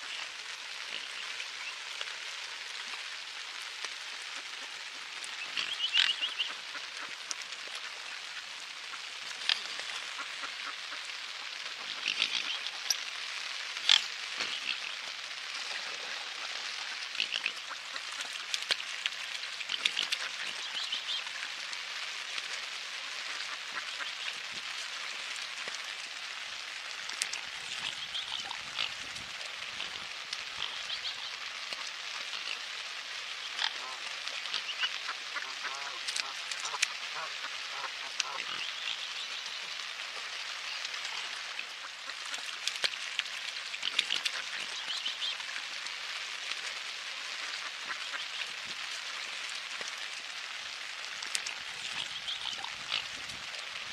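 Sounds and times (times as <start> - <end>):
rain falling on water: 0.0 - 53.9
ducks quacking: 5.4 - 7.2, 7.8 - 11.1, 27.7 - 29.1, 33.4 - 39.5, 47.4 - 48.6.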